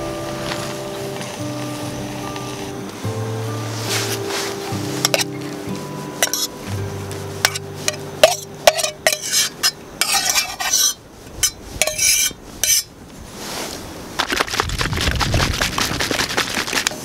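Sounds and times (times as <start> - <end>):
metal utensil scraping metal cup: 5.0 - 5.4, 6.2 - 6.5, 7.4 - 12.9.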